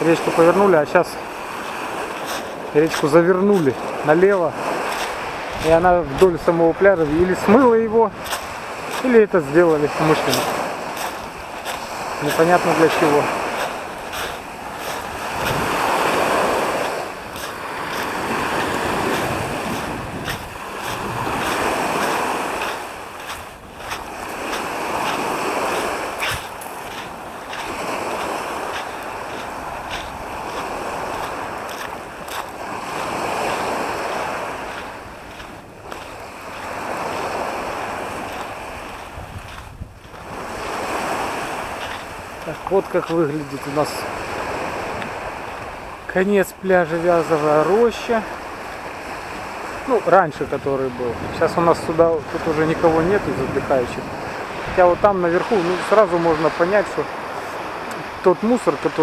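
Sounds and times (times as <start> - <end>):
waves washing up shingle beach: 0.0 - 59.0
wind on microphone: 1.2 - 43.0.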